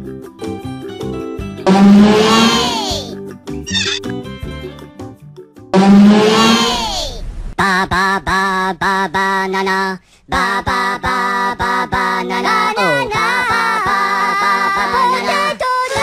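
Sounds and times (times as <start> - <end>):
high-pitched voices singing gibberish: 1.7 - 4.1, 6.0 - 16.0.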